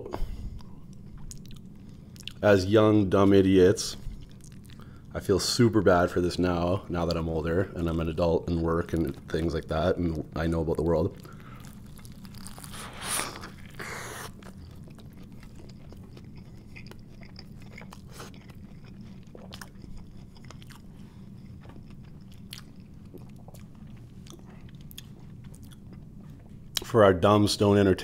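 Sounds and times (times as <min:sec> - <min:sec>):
low steady hum: 0:00.0 - 0:28.0
chewing with wet mouth clicks: 0:00.6 - 0:02.4, 0:04.1 - 0:05.0, 0:13.4 - 0:26.9
crunching bite: 0:11.2 - 0:26.0.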